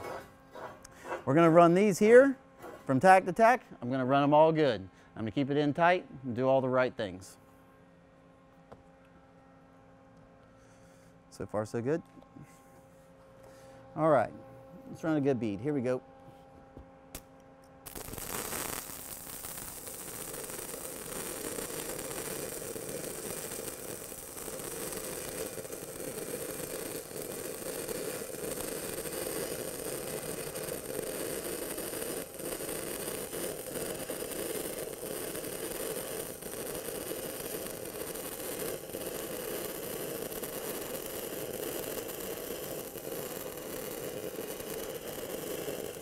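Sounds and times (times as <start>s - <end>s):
welding arc crackling: 17.8s - 46.0s.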